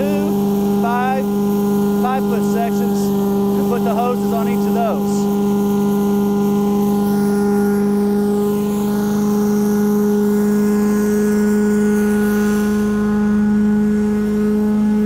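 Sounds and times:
vacuum system humming: 0.0s - 15.0s.

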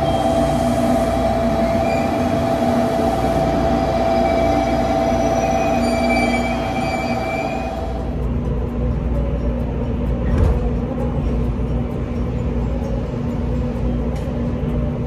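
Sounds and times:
electric train rumbling: 0.0s - 15.0s
high train whine: 0.0s - 15.0s.

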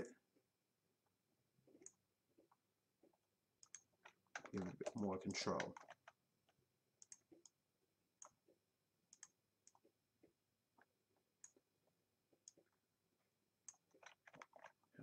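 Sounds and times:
faint computer mouse clicks: 7.0s - 7.6s, 9.1s - 9.8s.

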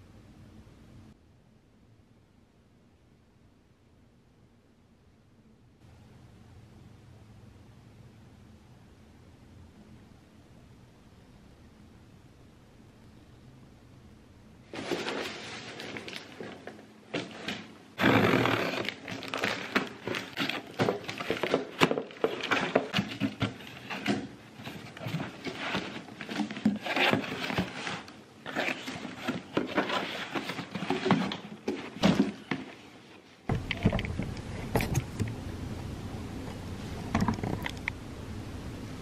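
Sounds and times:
steady background noise: 0.0s - 39.0s
cardboard rustling and tearing: 14.7s - 32.8s.

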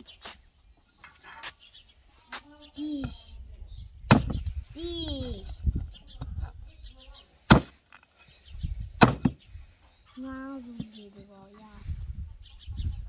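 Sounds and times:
hatchet chopping on wooden stump: 4.1s - 4.4s, 7.5s - 7.8s, 9.0s - 9.4s.

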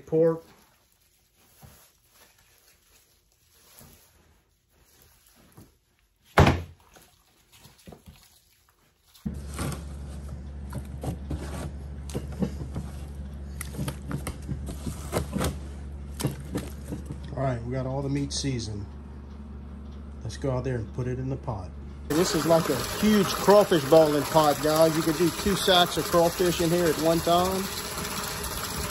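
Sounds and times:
hands mixing raw meat: 0.0s - 11.0s, 22.1s - 28.9s
steady low hum: 9.3s - 28.7s.

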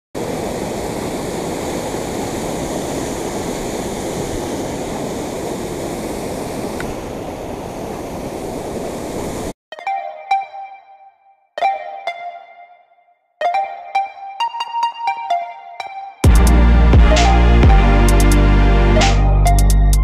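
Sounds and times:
water rushing over spillway: 0.2s - 9.6s.

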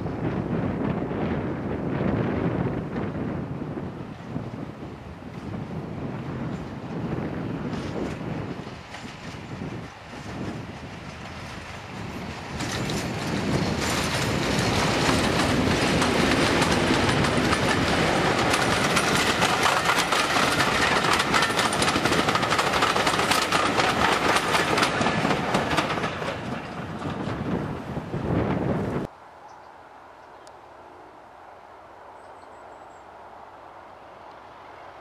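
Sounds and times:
diesel train engine passing: 0.0s - 35.0s
train wheels clattering on track: 6.4s - 27.9s.

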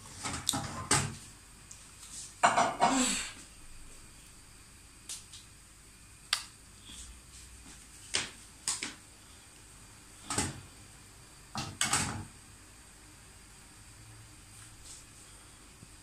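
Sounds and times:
faint steady background noise: 0.0s - 16.0s.

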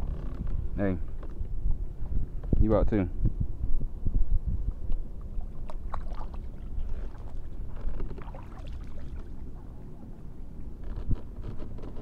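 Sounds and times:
wind rumble on microphone: 0.0s - 12.0s
small water splashes: 5.3s - 9.7s.

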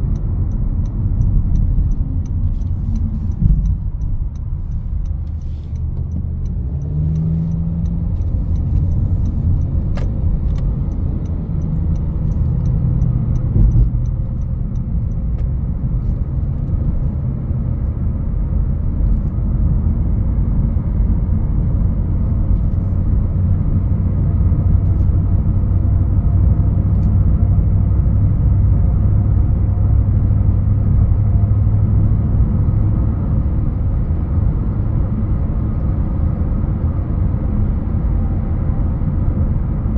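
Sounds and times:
light ticking: 0.0s - 15.7s
car engine and tyres rumbling: 0.0s - 39.9s.

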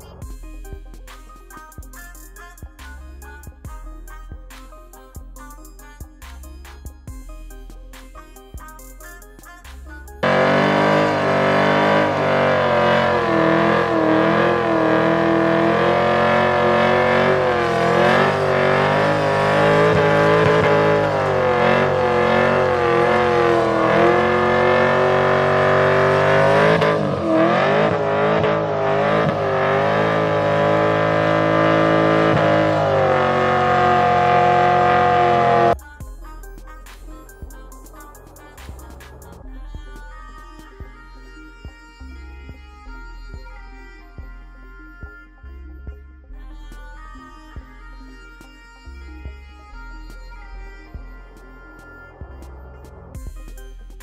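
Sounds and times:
car engine revving high: 10.2s - 35.8s.

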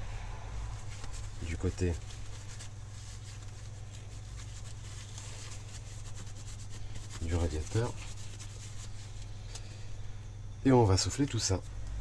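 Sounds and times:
wipe rubbing metal plate: 0.8s - 9.2s.

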